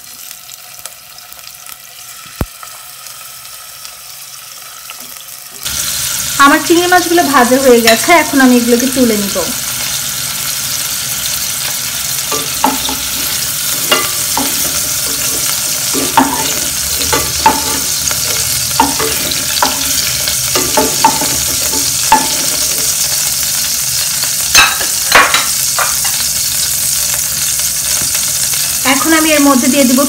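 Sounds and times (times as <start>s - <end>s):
oil sizzling in a saucepan: 0.0s - 30.0s.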